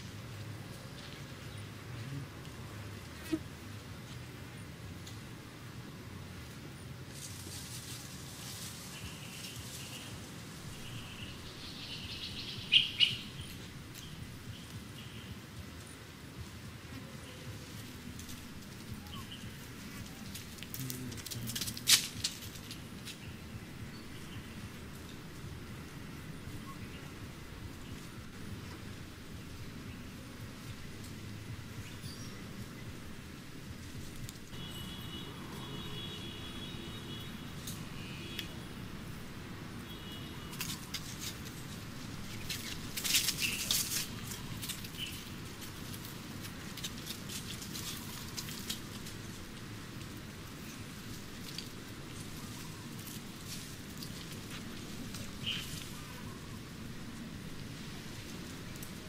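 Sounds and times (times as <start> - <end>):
monkeys scuffling on gravel: 0.0 - 4.4, 6.4 - 35.0, 40.0 - 59.0
dry leaves crackling: 0.0 - 5.6, 6.2 - 59.0.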